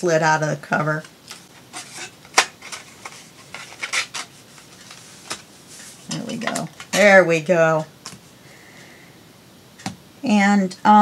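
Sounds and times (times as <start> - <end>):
paper and card rustling: 1.0 - 7.2.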